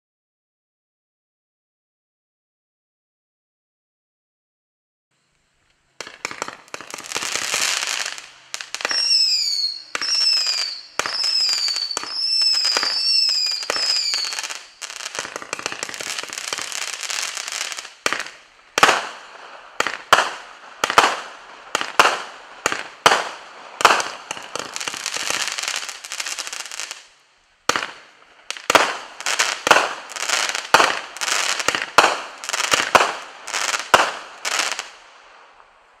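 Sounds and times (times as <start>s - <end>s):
firework crackling: 5.5s - 36.0s
firework falling whistles: 6.0s - 27.1s
firework sharp reports: 6.0s - 36.0s.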